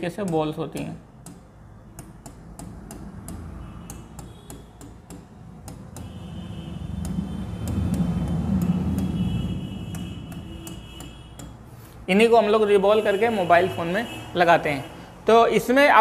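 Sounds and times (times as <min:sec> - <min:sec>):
marker tapping on board: 0:00.0 - 0:11.7.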